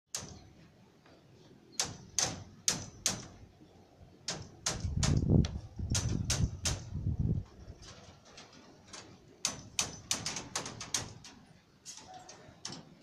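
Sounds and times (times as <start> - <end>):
sharp knocks: 4.3 - 6.9.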